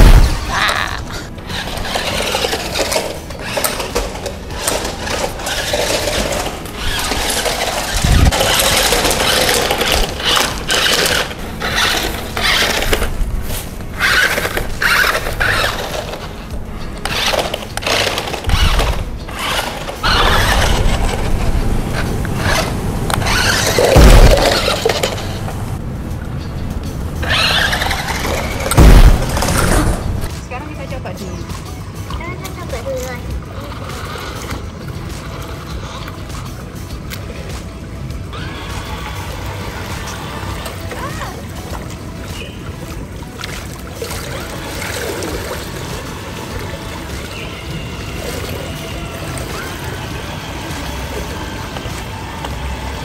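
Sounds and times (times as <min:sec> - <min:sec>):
toy car electric motor whining: 0:01.5 - 0:04.0, 0:04.6 - 0:13.1, 0:14.0 - 0:16.3, 0:17.0 - 0:21.4, 0:22.4 - 0:25.4, 0:27.2 - 0:29.9, 0:38.3 - 0:41.0, 0:47.0 - 0:53.0
heavy thump: 0:28.7 - 0:30.3.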